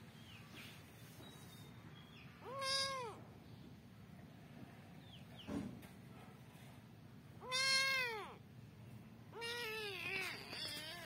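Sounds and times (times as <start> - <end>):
kitten meowing: 2.4 - 3.2, 7.4 - 8.4, 9.4 - 11.0.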